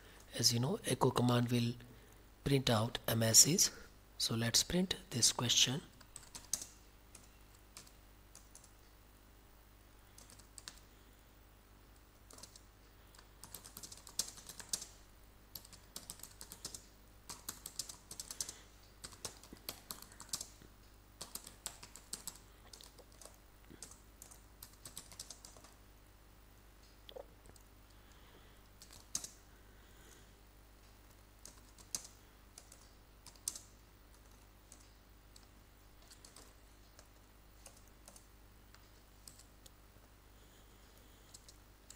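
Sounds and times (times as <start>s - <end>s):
faint computer keyboard typing: 6.0s - 8.9s, 10.1s - 11.0s, 11.9s - 25.8s, 27.5s - 29.4s, 30.8s - 41.9s.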